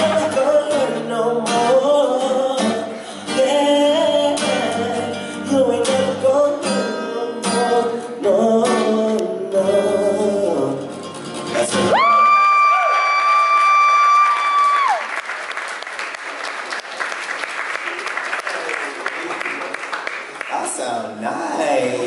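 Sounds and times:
man singing: 0:00.0 - 0:12.6, 0:20.9 - 0:22.0
acoustic guitar: 0:00.0 - 0:12.7.

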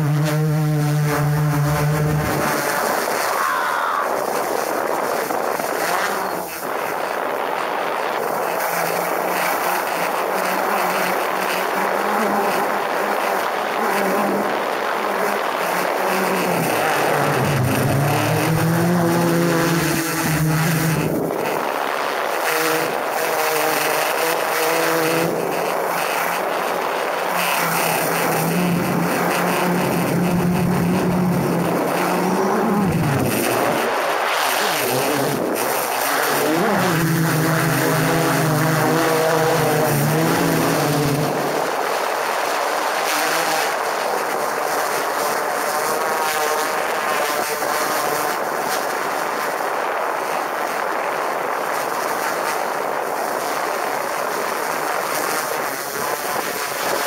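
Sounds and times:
drone rotors whining: 0:00.0 - 0:45.4.

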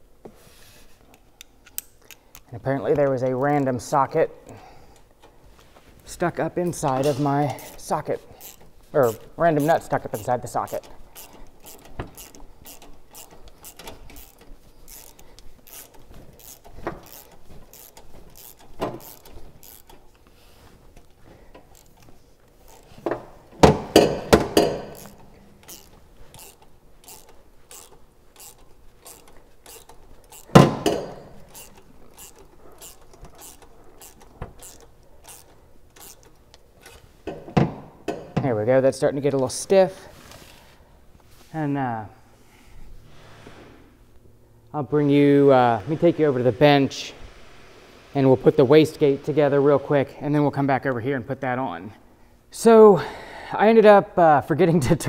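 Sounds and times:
socket ratchet clicking: 0:01.1 - 0:03.7, 0:06.8 - 0:20.3, 0:21.0 - 0:38.4.

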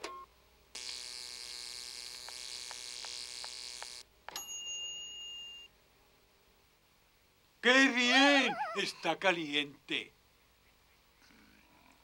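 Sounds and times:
electric buzzing hum: 0:00.7 - 0:04.0.

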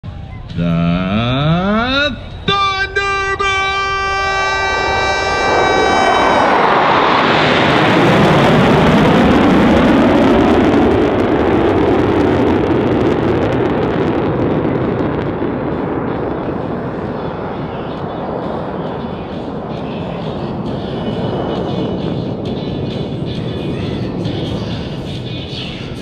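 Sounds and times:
steady pitched tone: 0:00.1 - 0:08.0
jet fighters roaring: 0:00.1 - 0:26.0.

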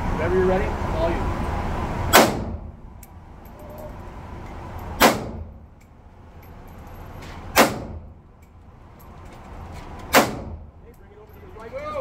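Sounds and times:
rifle shots echoing: 0:05.0 - 0:05.6, 0:07.6 - 0:08.1, 0:10.1 - 0:10.7.

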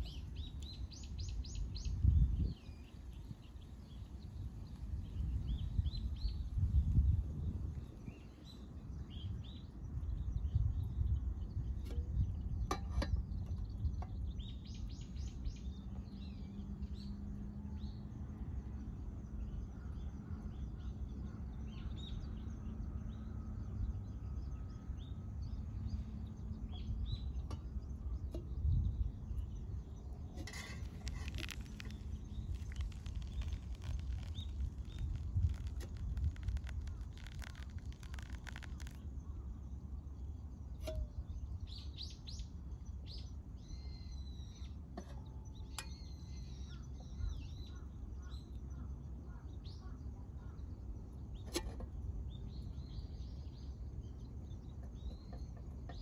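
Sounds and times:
small birds chirping: 0:00.0 - 0:12.6, 0:24.5 - 0:56.0
low outdoor rumble: 0:22.4 - 0:41.8
water pouring into coffee filter: 0:30.5 - 0:39.0.

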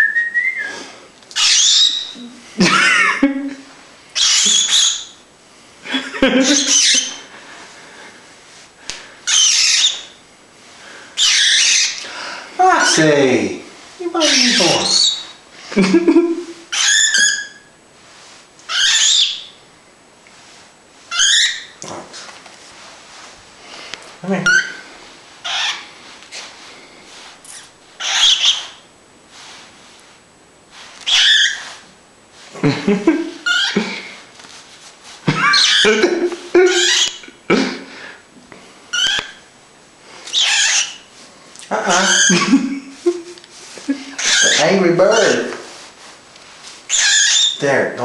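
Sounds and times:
cockatiel screeching: 0:01.4 - 0:02.2, 0:04.2 - 0:05.2, 0:06.4 - 0:07.2, 0:09.2 - 0:10.2, 0:11.2 - 0:12.0, 0:12.8 - 0:13.1, 0:14.2 - 0:15.3, 0:16.7 - 0:17.7, 0:18.7 - 0:19.6, 0:21.1 - 0:21.8, 0:24.4 - 0:24.8, 0:25.4 - 0:25.9, 0:27.5 - 0:28.8, 0:31.0 - 0:31.8, 0:33.4 - 0:33.8, 0:35.4 - 0:36.0, 0:36.6 - 0:37.2, 0:38.9 - 0:39.5, 0:40.3 - 0:41.1, 0:41.9 - 0:42.6, 0:44.1 - 0:45.4, 0:46.9 - 0:47.6
person speaking: 0:12.6 - 0:15.2, 0:24.2 - 0:24.8, 0:41.6 - 0:45.7.

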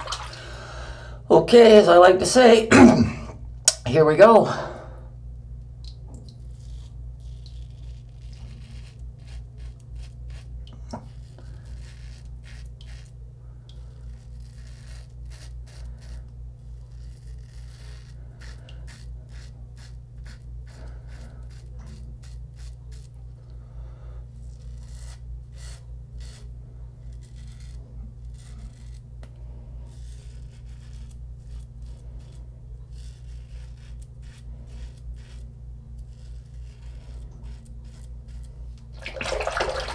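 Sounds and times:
steady low hum: 0:00.0 - 0:39.9
razor scraping stubble: 0:06.4 - 0:23.6, 0:24.2 - 0:39.0.

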